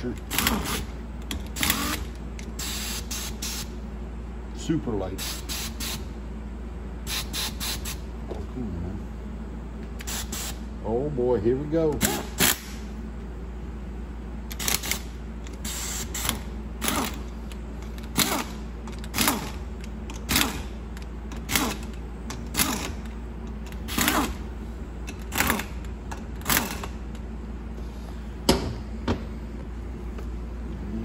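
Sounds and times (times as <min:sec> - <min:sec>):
air tool whirring: 0:00.2 - 0:03.8, 0:05.2 - 0:06.1, 0:07.0 - 0:08.1, 0:10.0 - 0:10.6, 0:12.0 - 0:12.9, 0:14.5 - 0:24.5, 0:25.1 - 0:27.1.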